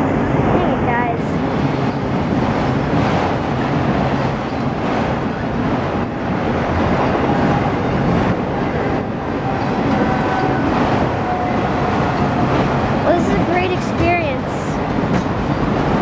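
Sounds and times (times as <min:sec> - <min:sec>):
freight train wheels rumbling: 0:00.0 - 0:16.0.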